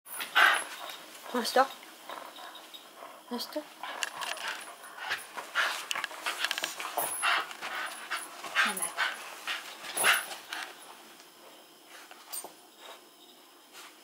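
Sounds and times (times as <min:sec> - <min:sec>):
dog panting: 0:00.1 - 0:10.8.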